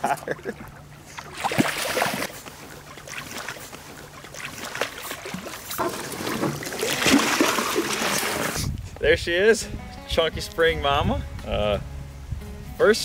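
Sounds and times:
fish thrashing and splashing water: 0.5s - 8.6s.

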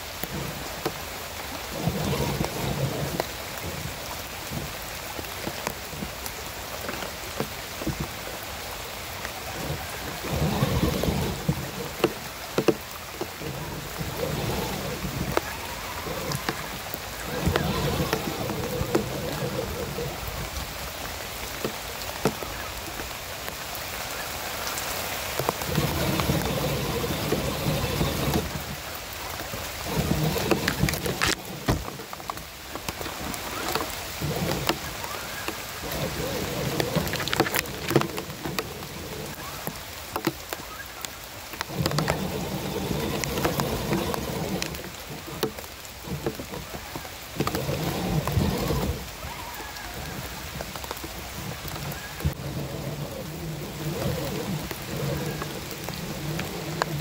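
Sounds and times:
steady hiss with ticks: 0.0s - 57.0s
electric motors whining: 1.6s - 5.3s, 9.6s - 20.8s, 25.4s - 40.2s, 41.6s - 57.0s.

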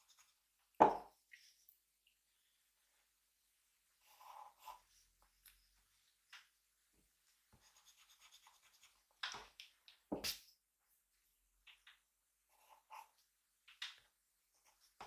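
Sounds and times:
drawing tool scratching on paper: 7.6s - 9.1s, 12.5s - 13.2s.

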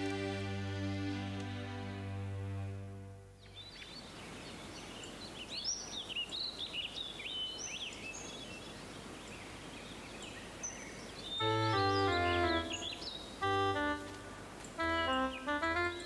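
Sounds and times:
steady outdoor hiss: 0.0s - 16.0s
small birds chirping: 3.4s - 16.0s
piano music: 11.4s - 16.0s.

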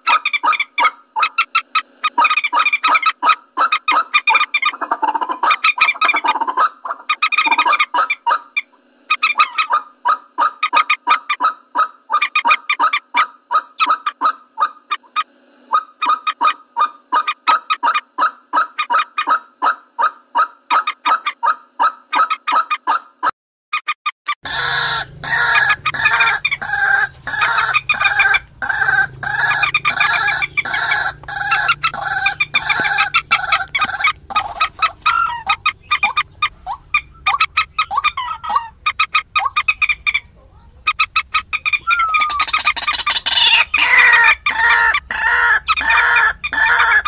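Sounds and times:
moorhen calls: 24.4s - 47.0s.

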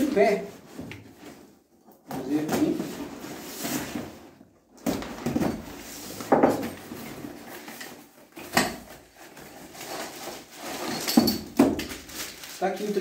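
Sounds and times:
cardboard scraping and rustling: 2.3s - 11.0s.

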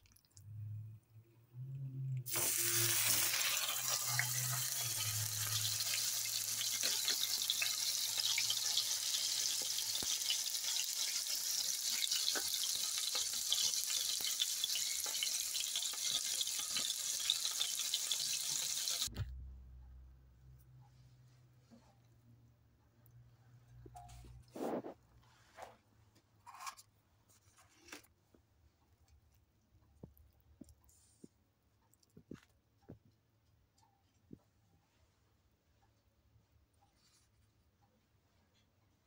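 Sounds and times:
steak sizzling in hot oil: 2.3s - 19.1s.

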